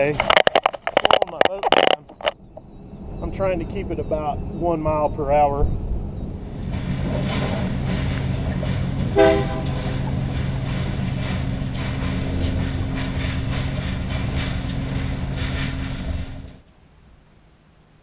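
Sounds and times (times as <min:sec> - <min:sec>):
wheels clattering over rail joints: 0:00.0 - 0:02.7, 0:06.5 - 0:16.7
train rumbling: 0:00.0 - 0:18.0
train horn toot: 0:09.1 - 0:09.8.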